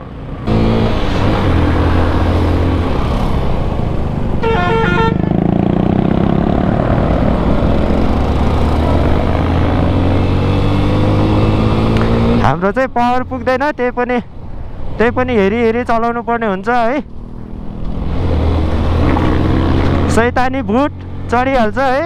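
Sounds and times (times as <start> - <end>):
road and wind noise: 0.0 - 22.0
vehicle horn beeps: 4.4 - 5.3
motorcycle engine running: 5.0 - 10.1.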